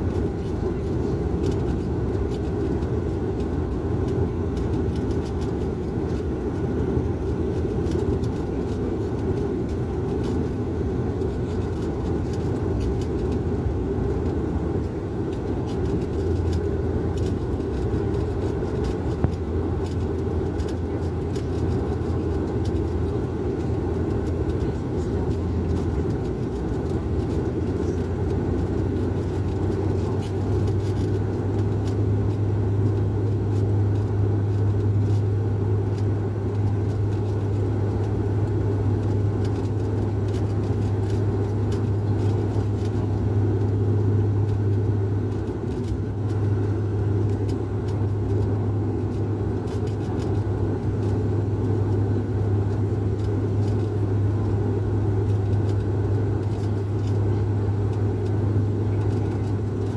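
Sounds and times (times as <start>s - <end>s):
airliner cabin engine drone: 0.0s - 59.9s.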